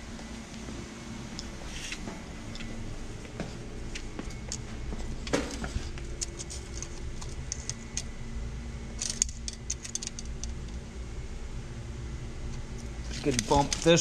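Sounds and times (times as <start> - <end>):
steady low hum: 0.0 - 14.0
tape measure clicks and rattles: 13.1 - 14.0.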